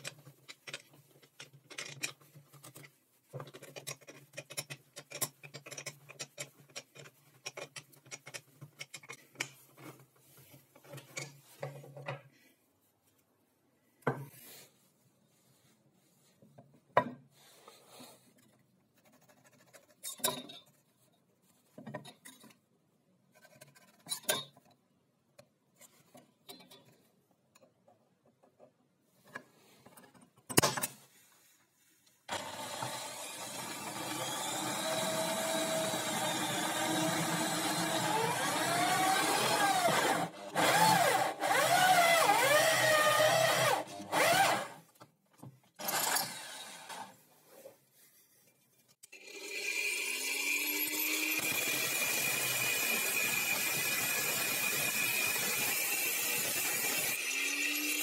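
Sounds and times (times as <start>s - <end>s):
electric drill cutting into metal: 32.3s - 44.8s, 45.8s - 47.1s, 49.3s - 58.0s.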